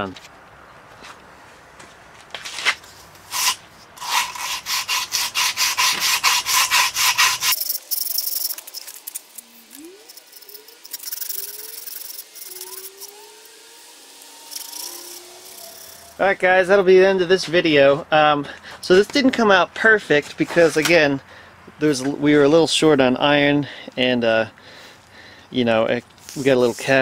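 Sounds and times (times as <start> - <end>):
abrasive cloth rubbing cast iron: 3.3 - 16.4.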